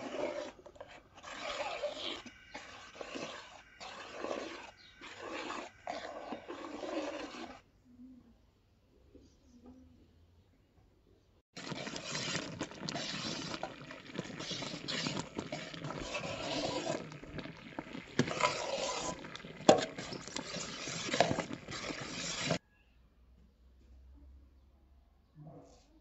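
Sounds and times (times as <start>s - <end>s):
rustling and scraping: 0.0s - 7.6s, 11.6s - 22.6s.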